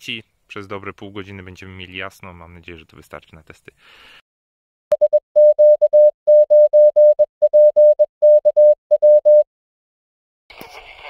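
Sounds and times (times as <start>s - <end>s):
morse code beeps: 4.9s - 9.5s.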